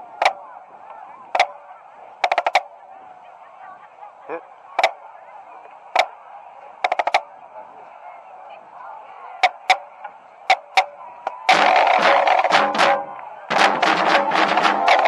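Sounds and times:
crowd murmur: 0.0 - 15.0
drumstick clicks: 10.5 - 10.9.

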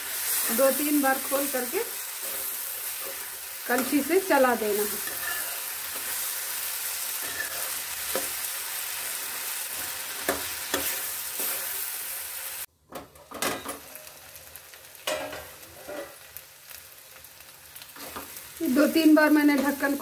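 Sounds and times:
vegetables sizzling in oil: 0.0 - 12.7, 13.6 - 20.0
ladle scraping pan: 5.0 - 6.1.

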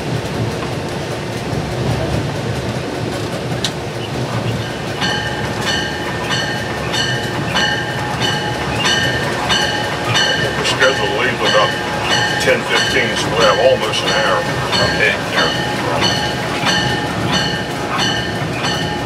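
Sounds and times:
diesel locomotive rumble: 0.0 - 19.0
locomotive bell ringing: 4.2 - 19.0.

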